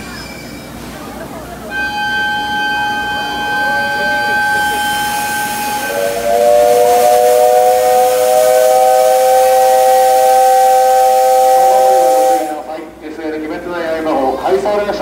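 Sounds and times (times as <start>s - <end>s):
steam locomotive whistle: 1.7s - 12.7s.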